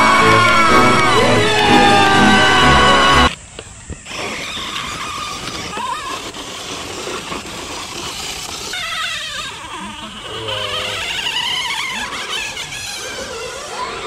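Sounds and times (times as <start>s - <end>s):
electric motor and gears whining: 0.0s - 3.4s.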